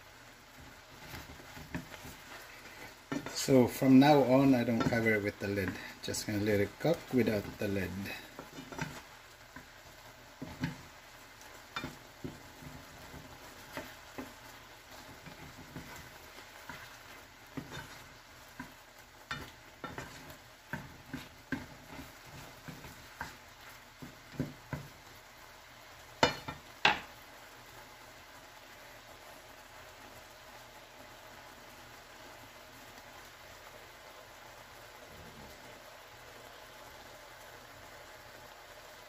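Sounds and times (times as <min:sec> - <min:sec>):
mushrooms sizzling faintly: 0:00.0 - 0:39.0
wooden spatula knocking and scraping pan: 0:00.5 - 0:25.2, 0:26.0 - 0:27.2.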